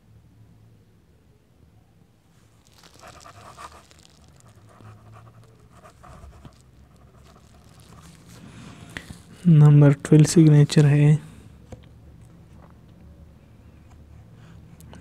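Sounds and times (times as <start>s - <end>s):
low steady hum: 0.0s - 15.0s
pen scratching on paper: 3.0s - 9.2s.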